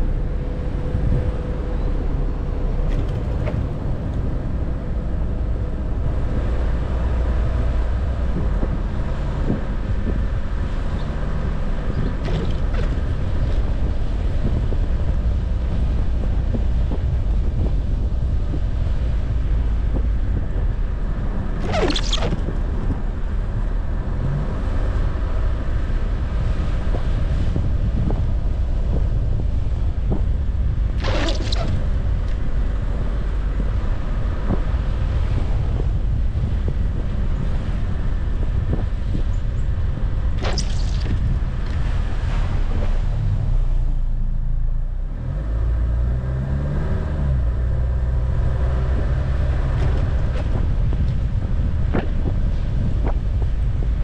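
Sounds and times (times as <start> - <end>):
car driving over packed snow: 2.7 - 44.2
brief higher swish: 21.6 - 22.6, 31.0 - 31.8, 40.4 - 41.3.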